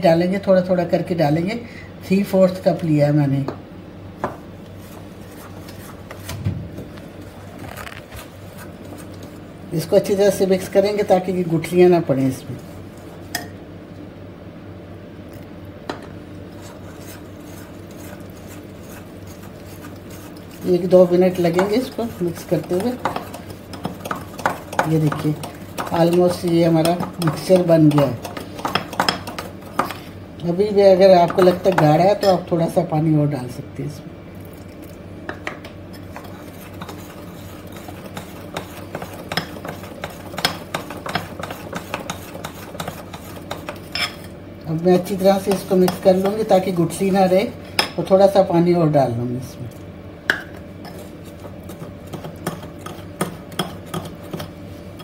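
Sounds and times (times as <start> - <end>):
steady low hum: 0.0 - 55.0
metal spoon stirring in glass bowl: 16.5 - 32.4, 35.9 - 48.1, 50.8 - 55.0.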